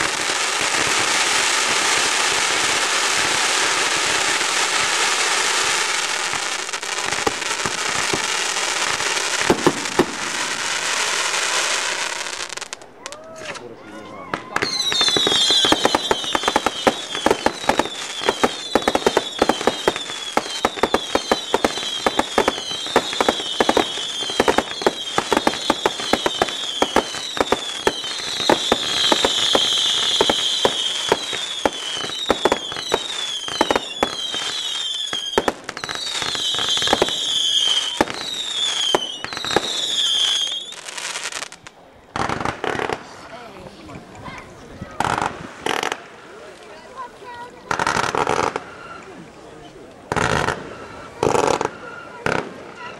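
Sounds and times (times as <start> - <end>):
fireworks bangs and crackles: 0.0 - 52.9
fireworks whistles falling in pitch: 14.3 - 41.6, 47.7 - 49.2, 50.1 - 52.9.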